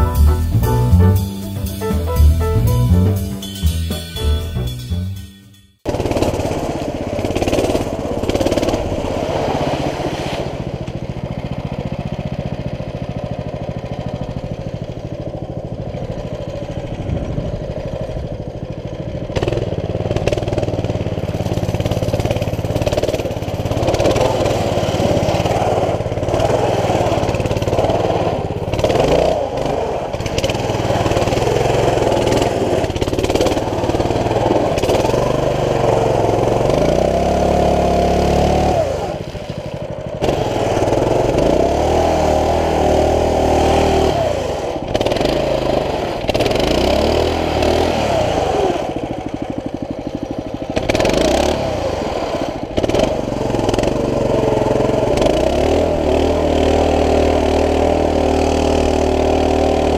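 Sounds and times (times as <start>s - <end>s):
mini bike engine revving: 5.9s - 59.9s
bike riding through water: 6.0s - 15.0s, 19.4s - 35.1s, 36.2s - 44.0s.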